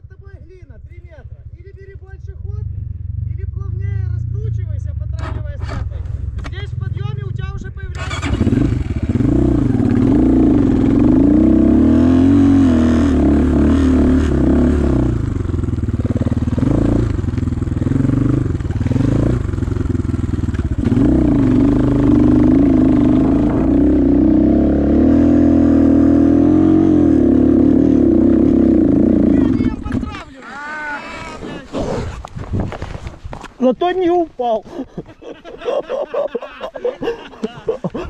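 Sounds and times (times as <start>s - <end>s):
motorcycle engine revving: 2.4s - 30.3s.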